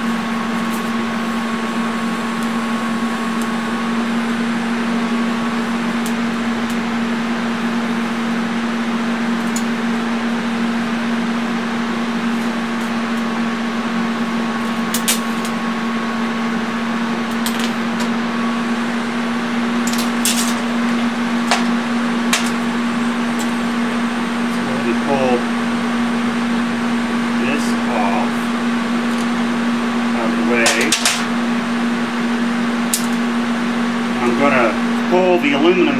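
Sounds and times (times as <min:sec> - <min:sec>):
steady electrical hum: 0:00.0 - 0:35.9
noisy hiss: 0:19.9 - 0:32.0.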